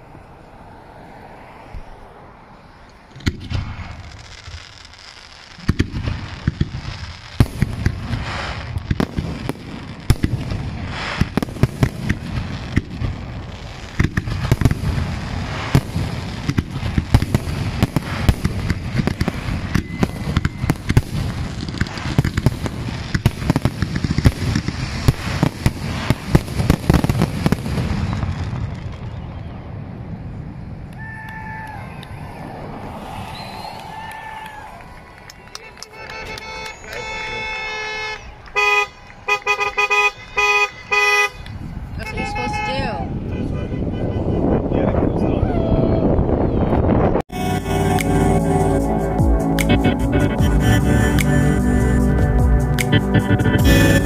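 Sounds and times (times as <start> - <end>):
fireworks bangs and crackling: 3.1 - 30.9, 52.8 - 54.0.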